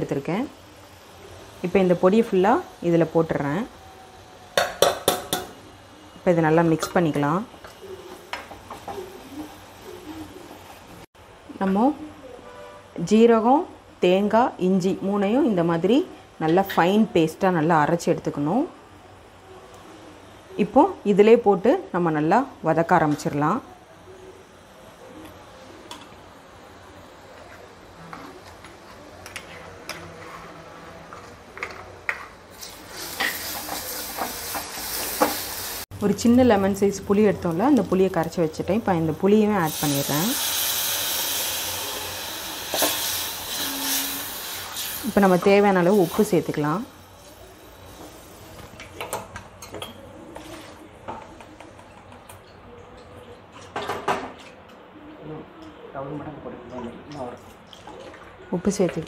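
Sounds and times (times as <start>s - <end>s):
low background noise: 0.0s - 59.0s
kitchen clicks and taps: 4.6s - 5.6s
paste sizzling in hot oil: 32.5s - 35.9s, 36.8s - 48.7s.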